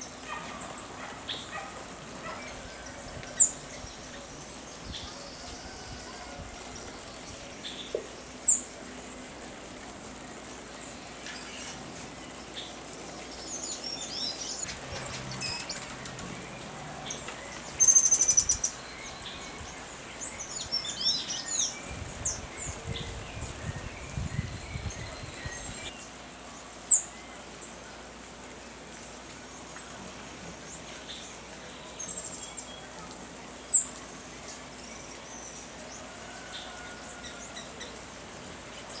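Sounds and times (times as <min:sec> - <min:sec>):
steady hiss: 0:00.0 - 0:39.0
songbirds chirping and whistling: 0:10.1 - 0:26.0.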